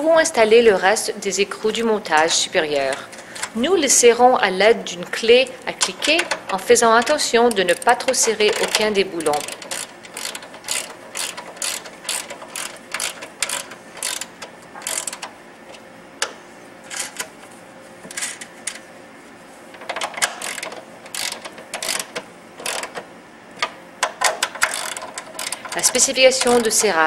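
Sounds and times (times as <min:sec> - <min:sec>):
ratchet wrench clicking: 0:05.8 - 0:15.3, 0:19.8 - 0:23.0, 0:23.6 - 0:27.0.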